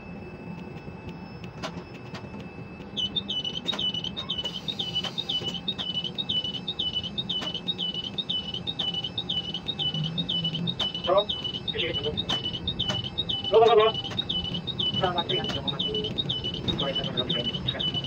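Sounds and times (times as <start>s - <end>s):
crane warning beeper chirps: 0.0s - 18.0s
low machinery hum: 0.0s - 18.0s
sharp clicks: 12.1s - 13.1s.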